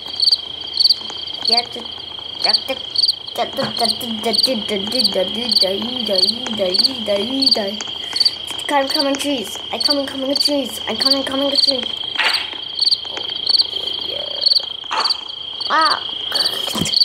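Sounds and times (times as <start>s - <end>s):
crickets chirping: 0.0s - 17.0s
low wavering calls: 11.0s - 16.6s.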